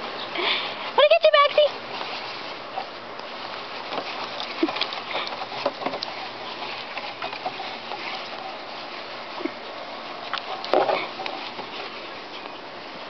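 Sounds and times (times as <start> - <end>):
rustling and scuffling on grass: 0.0 - 13.0.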